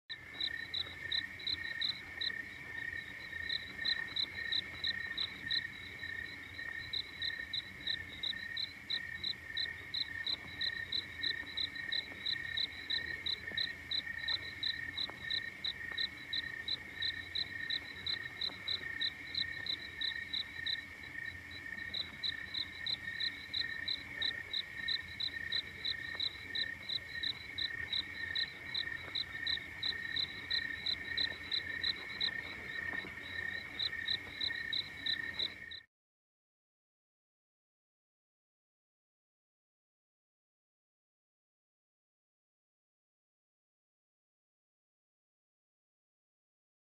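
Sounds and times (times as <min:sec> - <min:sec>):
insects chirping: 0:00.1 - 0:35.8
low continuous insect trill: 0:00.1 - 0:35.9.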